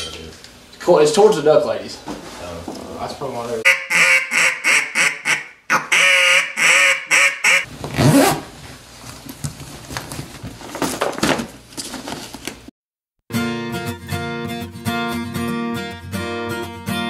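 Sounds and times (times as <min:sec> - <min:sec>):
duck call quacks: 0:03.6 - 0:07.7
gear bags rustling and clicking: 0:07.8 - 0:12.6.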